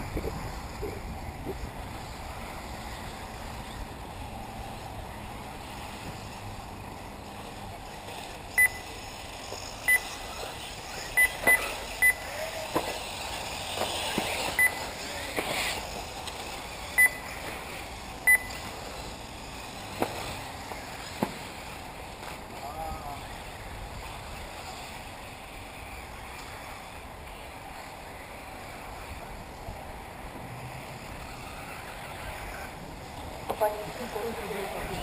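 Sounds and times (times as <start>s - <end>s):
electric motors whining: 0.0s - 35.0s
short high electronic beeps: 8.6s - 8.9s, 11.2s - 12.2s, 14.6s - 14.8s, 17.0s - 17.3s, 18.3s - 18.6s.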